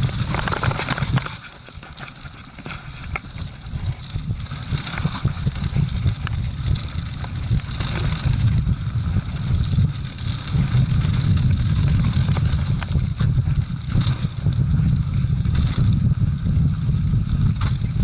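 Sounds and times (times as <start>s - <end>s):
tyres crackling on dry leaves: 0.0s - 13.2s
bike rattling over bumps: 0.0s - 18.0s
wind buffeting microphone: 0.0s - 18.0s.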